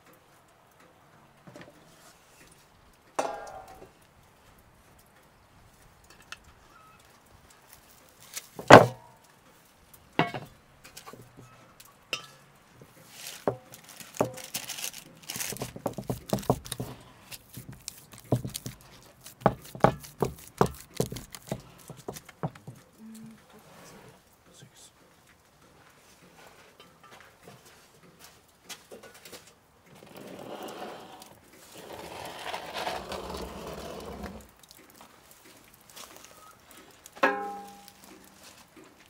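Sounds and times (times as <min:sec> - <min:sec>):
parchment paper crinkling: 0:13.0 - 0:22.8
meat slaps and knocks: 0:13.8 - 0:22.8.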